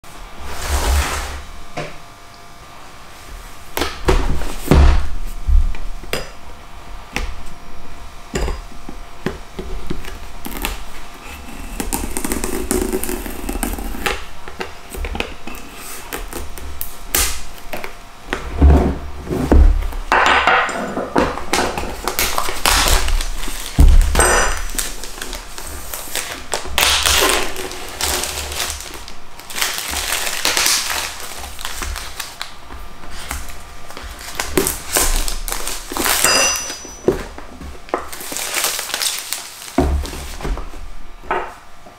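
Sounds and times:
plastic film crinkling: 0:21.8 - 0:40.7
knife slitting plastic wrap: 0:21.9 - 0:32.5, 0:33.1 - 0:37.2, 0:37.9 - 0:40.4.

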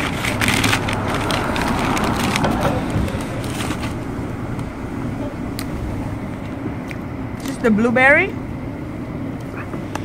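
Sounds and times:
paper bag crinkling and rustling: 0:00.0 - 0:04.0.

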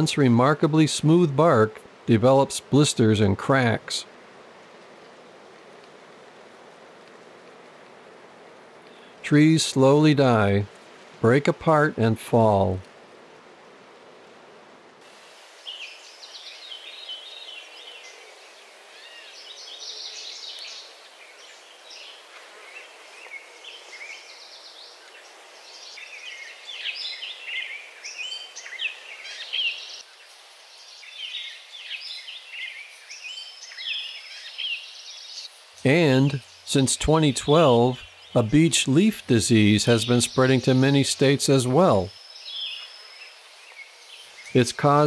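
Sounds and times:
faint hiss: 0:00.0 - 0:45.0
forest birds singing: 0:08.8 - 0:12.8, 0:15.5 - 0:45.0.

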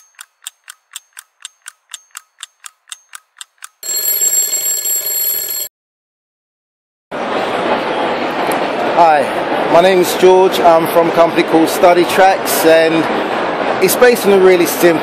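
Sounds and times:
alarm clock ticking: 0:00.0 - 0:05.7
alarm clock bell ringing: 0:03.8 - 0:05.7.

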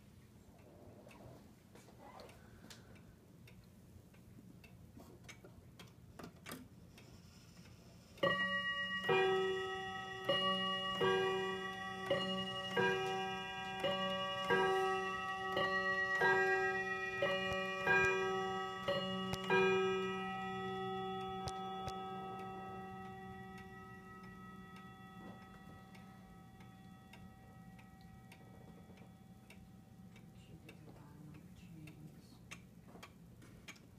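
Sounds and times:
clock ticking faintly: 0:00.0 - 0:33.9
clock hammer striking chime rods: 0:08.2 - 0:30.0.

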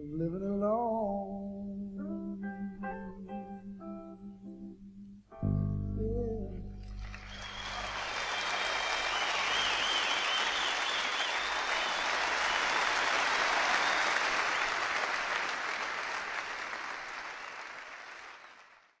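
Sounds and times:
audience applauding: 0:06.8 - 0:19.0
high wavering whistles: 0:07.2 - 0:12.0.

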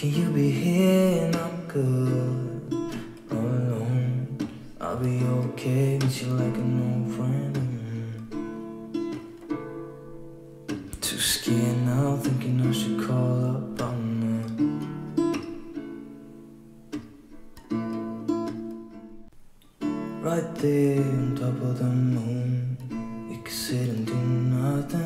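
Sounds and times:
strummed acoustic guitar music: 0:00.0 - 0:25.0.

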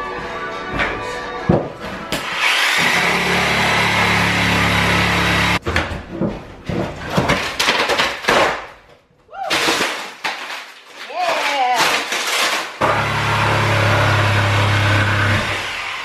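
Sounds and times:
power saw cutting flooring: 0:02.1 - 0:05.6, 0:12.8 - 0:16.0
flooring cracking and creaking: 0:05.6 - 0:12.8.

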